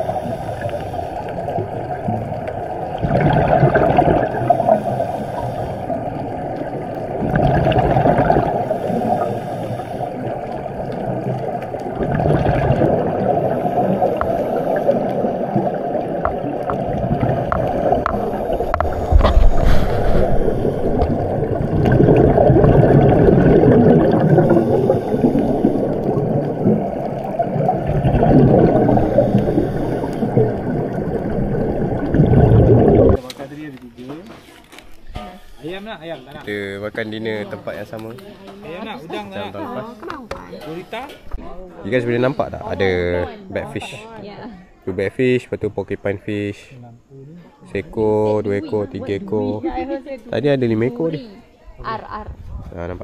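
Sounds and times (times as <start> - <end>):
water rushing and gurgling: 0.0 - 33.7.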